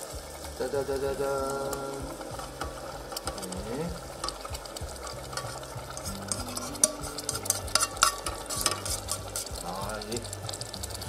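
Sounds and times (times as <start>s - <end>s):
stirring and scraping: 0.0s - 11.0s
vegetables sizzling in a metal pan: 0.0s - 11.0s
sauce poured and scraped: 1.7s - 11.0s.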